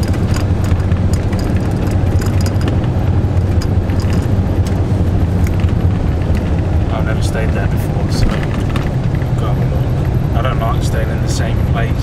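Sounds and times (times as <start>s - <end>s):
small clicks and rattles: 0.0s - 4.8s, 5.4s - 6.7s
van engine and road drone: 0.0s - 12.0s.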